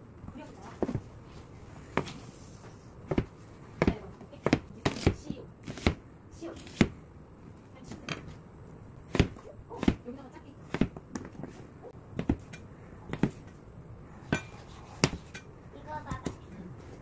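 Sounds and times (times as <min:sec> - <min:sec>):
knife chopping on a cutting board: 0:03.1 - 0:06.0, 0:06.6 - 0:06.9, 0:09.1 - 0:10.0, 0:10.7 - 0:11.4, 0:14.3 - 0:15.4.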